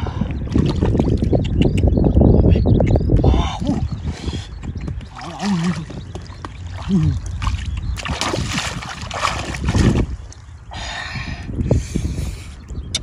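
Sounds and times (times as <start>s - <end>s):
water splashing and sloshing: 4.6s - 10.6s.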